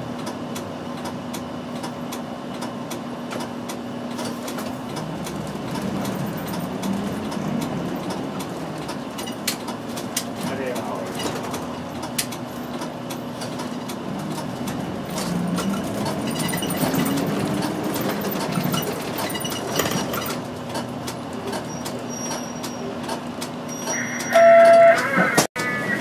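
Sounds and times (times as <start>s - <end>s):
bus engine running: 0.0s - 26.0s
cabin rattles and clicks: 3.3s - 23.6s.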